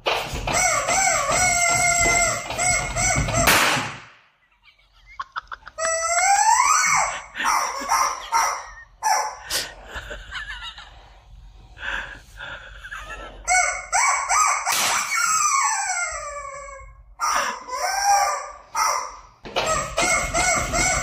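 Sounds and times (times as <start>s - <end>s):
cartoonish squawking: 0.3s - 3.9s, 5.3s - 9.8s, 13.4s - 21.0s.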